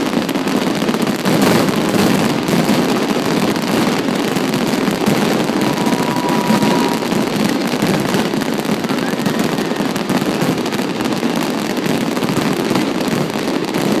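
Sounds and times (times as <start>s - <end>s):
continuous crackle and rumble: 0.0s - 14.0s
fireworks bursting: 0.0s - 14.0s.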